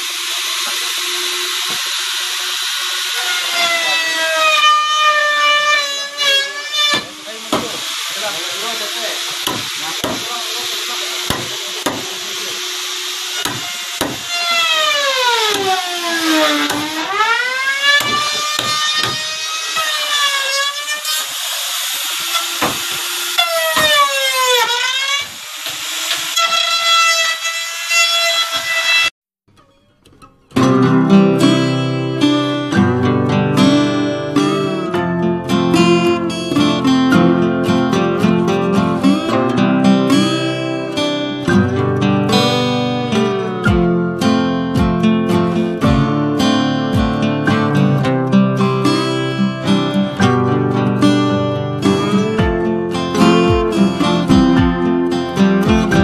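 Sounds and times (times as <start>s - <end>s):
power tool motor whine: 0.0s - 29.1s
wood cutting hiss: 0.0s - 29.1s
sharp knocks: 7.0s - 7.9s, 9.3s - 10.3s, 11.3s - 12.1s, 13.4s - 14.3s, 18.0s - 19.3s, 22.6s - 23.0s.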